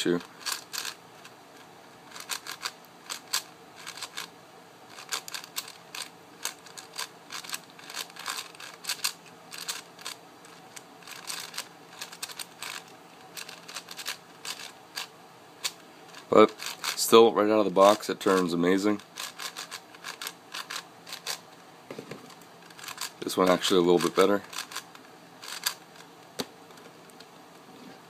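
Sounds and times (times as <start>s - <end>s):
plastic puzzle cube clicking: 2.1s - 4.3s, 4.9s - 10.2s, 19.2s - 21.4s, 24.0s - 25.8s.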